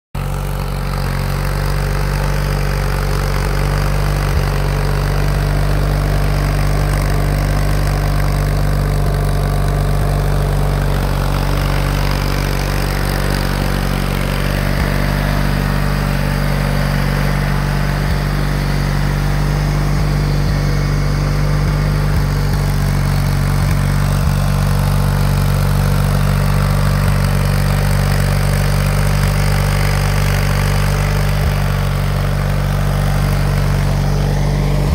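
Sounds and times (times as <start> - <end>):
garden tractor engine idling: 0.1 - 34.9.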